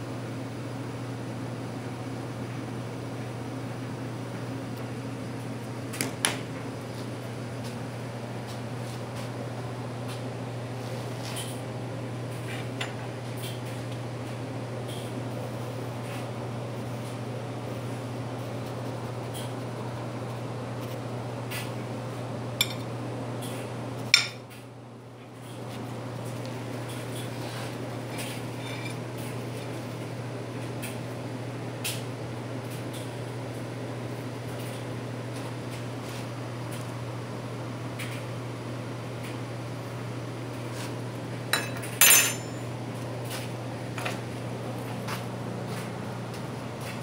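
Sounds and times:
clinks against glass bowl: 0:41.6 - 0:42.7.

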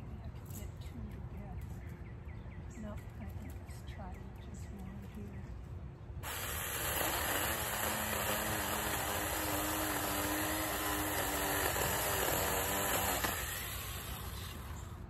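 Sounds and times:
mini chainsaw whirring: 0:06.2 - 0:15.0.

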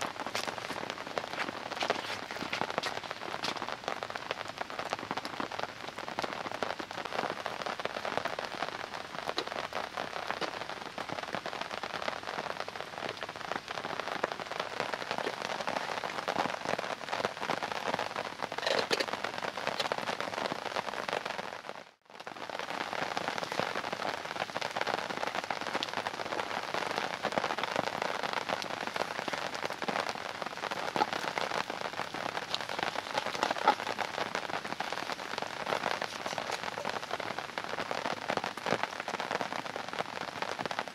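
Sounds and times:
heavy rain falling: 0:00.0 - 0:40.9.

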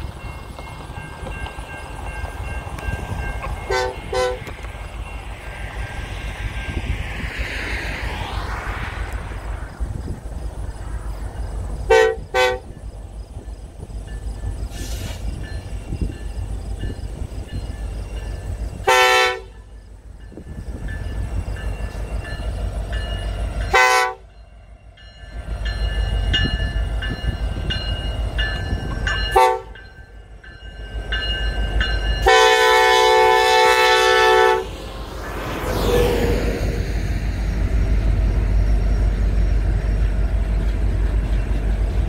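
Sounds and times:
train rumbling: 0:00.0 - 0:42.0
locomotive air horn blasts: 0:03.6 - 0:04.5, 0:11.9 - 0:12.8, 0:18.8 - 0:19.6, 0:23.7 - 0:24.3, 0:29.3 - 0:29.8, 0:32.2 - 0:34.7.

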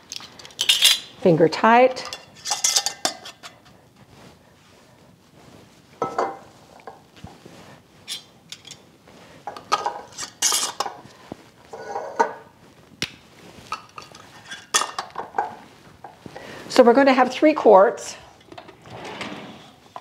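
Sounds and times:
jar lid threads scraping: 0:09.5 - 0:11.0.

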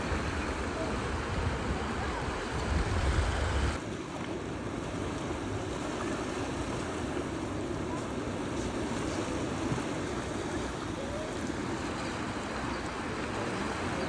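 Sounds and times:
wind rumble on microphone: 0:00.0 - 0:03.8
surf: 0:00.0 - 0:14.0
wind: 0:00.0 - 0:14.0.

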